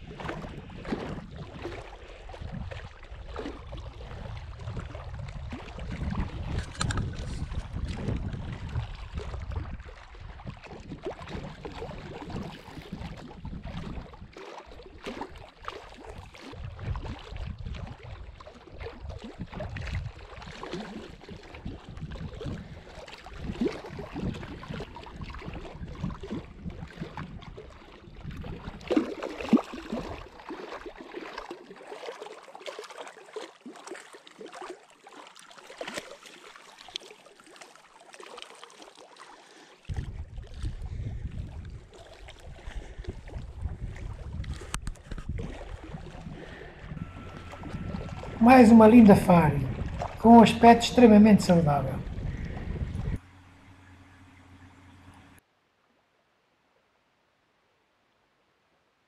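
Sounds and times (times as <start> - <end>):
wind buffeting microphone: 0.0 - 14.4, 16.0 - 29.0, 39.9 - 54.1
water splashes and knocks: 0.0 - 53.2
waves lapping stony shore: 0.0 - 55.4.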